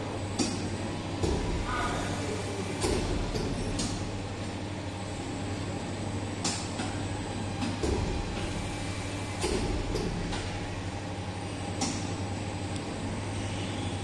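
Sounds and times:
machine mechanical hum: 0.0s - 14.0s.

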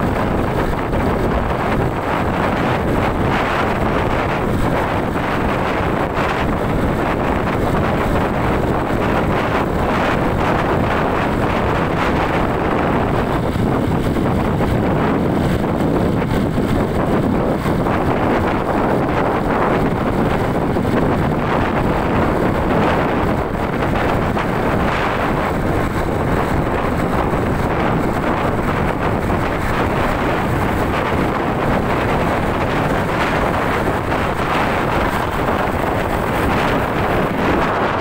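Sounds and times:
road and traffic noise: 0.0s - 38.0s
wind rush on microphone: 0.0s - 38.0s.

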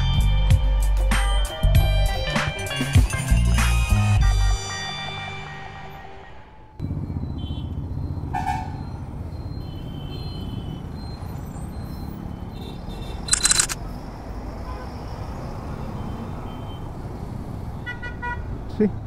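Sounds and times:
background music: 0.0s - 6.8s
vehicle engines in heavy traffic: 5.9s - 19.0s
car horns tooting: 7.4s - 8.8s.

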